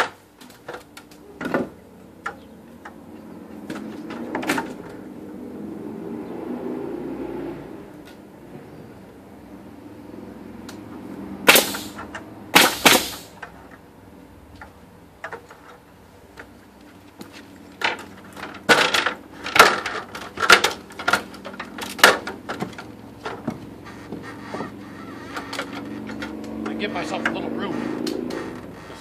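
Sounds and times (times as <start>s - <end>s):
nail gun shots with air hiss: 11.4s - 13.4s.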